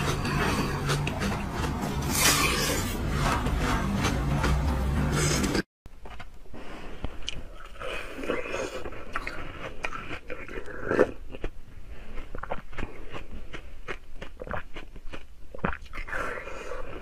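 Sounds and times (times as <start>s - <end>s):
ice crunching being chewed: 7.3s - 16.5s.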